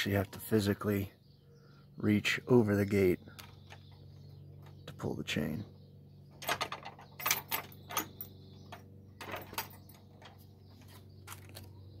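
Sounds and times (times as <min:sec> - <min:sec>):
metal chain rattling: 0:06.4 - 0:10.4.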